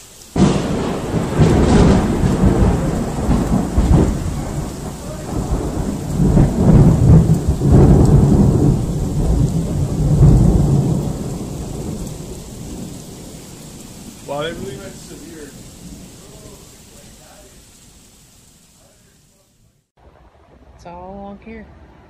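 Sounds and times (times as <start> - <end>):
steady rain: 0.0 - 22.0
rolling thunder: 0.3 - 19.1.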